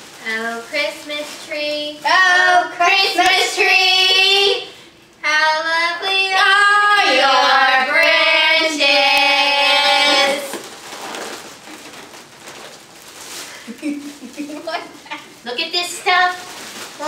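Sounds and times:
person singing with helium voice: 0.2 - 10.6.

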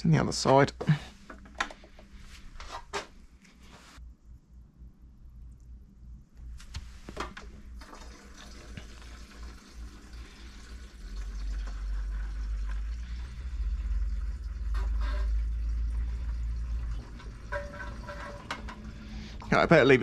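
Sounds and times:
liquid trickling into can: 7.8 - 19.8.

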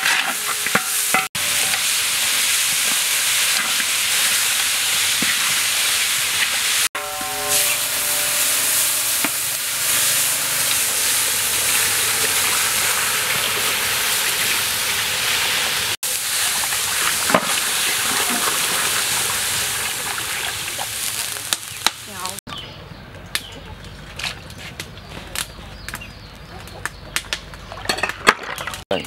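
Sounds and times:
water sizzling in hot wok: 0.0 - 22.4
water pouring: 8.7 - 21.7.

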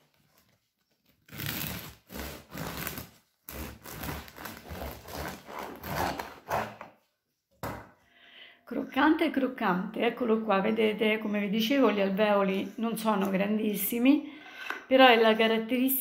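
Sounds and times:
knife sawing through bread crust: 1.3 - 6.9.

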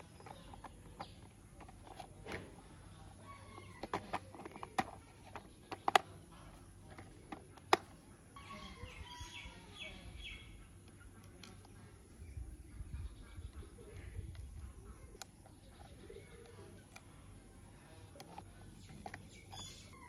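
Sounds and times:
plastic parts clicking and tapping: 0.0 - 2.6, 3.4 - 8.0, 15.2 - 17.1, 18.1 - 19.7
faint chirping: 0.0 - 20.0.

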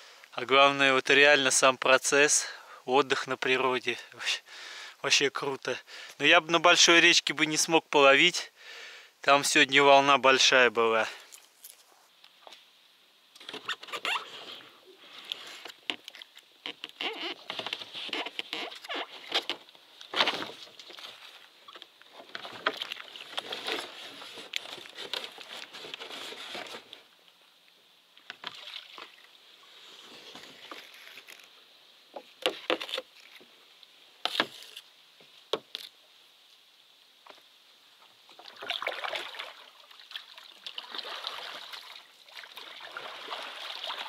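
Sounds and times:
water sloshing: 18.2 - 27.0, 28.3 - 29.4, 38.3 - 44.0.

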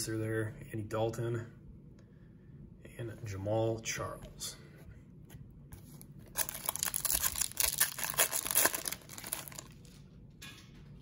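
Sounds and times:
wrapper tearing and crinkling: 6.3 - 10.0.

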